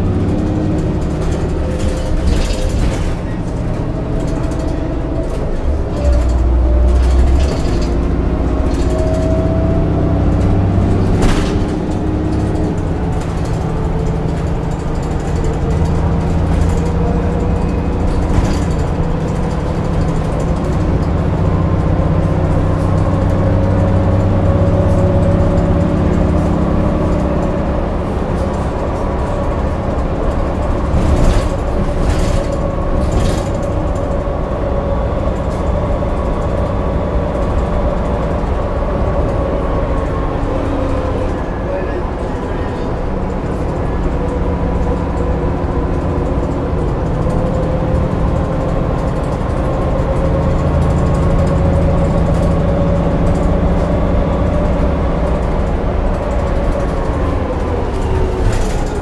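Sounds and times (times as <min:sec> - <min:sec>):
knocks and rattles: 0:00.0 - 0:41.5
bus engine drone: 0:00.0 - 0:59.0.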